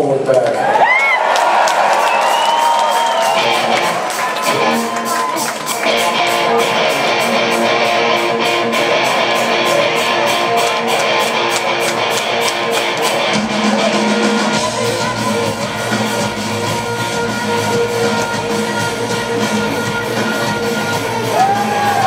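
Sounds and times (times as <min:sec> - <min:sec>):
live rock band: 0:01.4 - 0:22.0.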